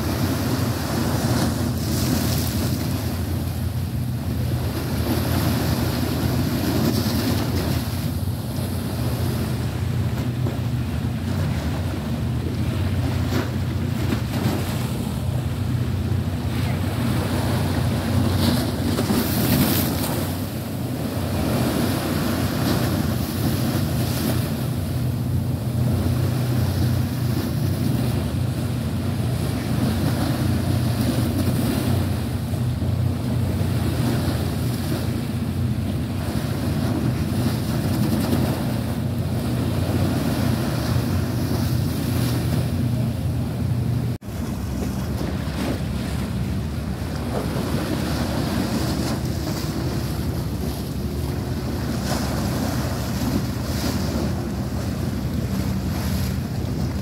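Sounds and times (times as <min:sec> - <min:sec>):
sea water washing against seawall: 0:00.0 - 0:57.0
wind buffeting microphone: 0:00.0 - 0:57.0.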